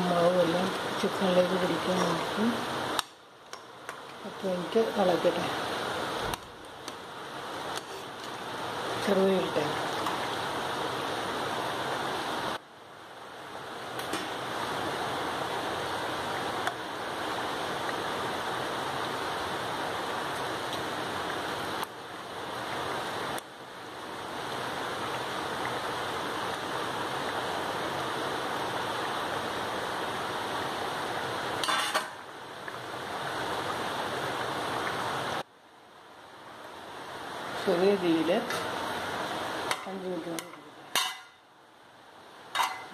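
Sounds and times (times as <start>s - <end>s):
metal ladle clicking on pan: 39.7s - 41.4s, 42.6s - 42.9s.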